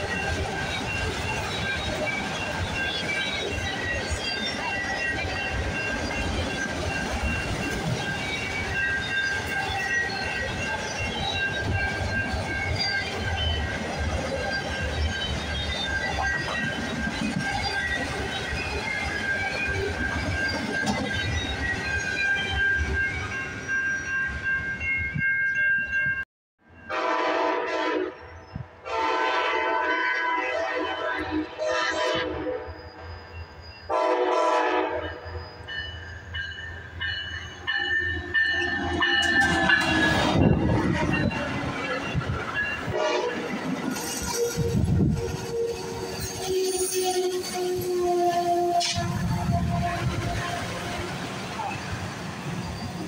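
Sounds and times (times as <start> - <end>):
train horn: 26.8 - 32.7, 33.9 - 35.4, 42.9 - 43.5, 44.4 - 51.2
freight train wheels clattering: 36.7 - 53.0
high-pitched wheel squeal: 37.7 - 53.0.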